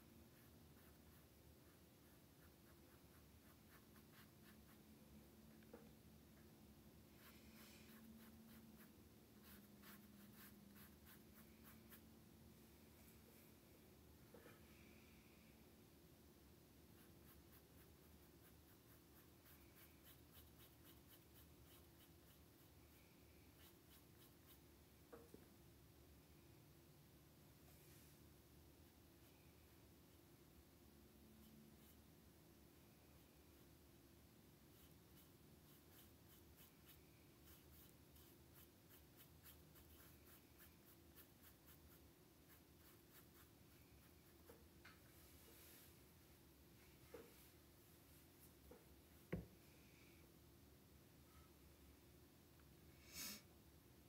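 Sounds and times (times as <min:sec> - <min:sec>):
low room hum: 0:00.0 - 0:54.0
paintbrush strokes on canvas: 0:07.1 - 0:12.1, 0:34.7 - 0:46.1.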